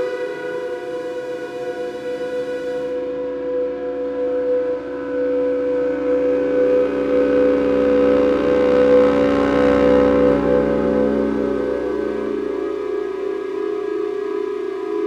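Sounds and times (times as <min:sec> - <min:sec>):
synthesizer drone: 0:00.0 - 0:15.0.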